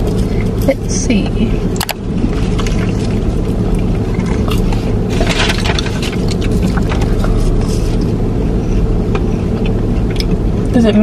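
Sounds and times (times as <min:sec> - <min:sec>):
car cabin rumble: 0:00.0 - 0:11.0.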